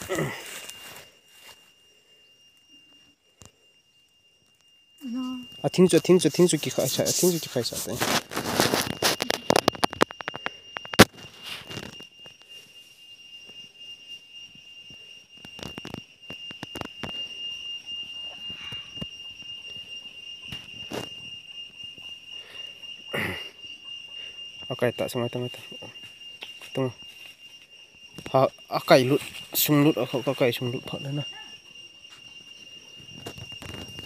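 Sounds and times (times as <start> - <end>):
leaves and branches rustling: 0.0 - 1.6
high-pitched insect drone: 0.0 - 34.0.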